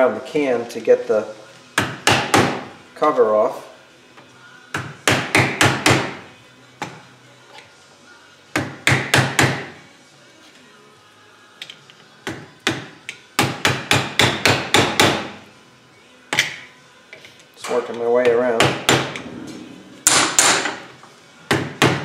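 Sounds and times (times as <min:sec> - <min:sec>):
hammer striking steel tool: 0:20.0 - 0:20.8.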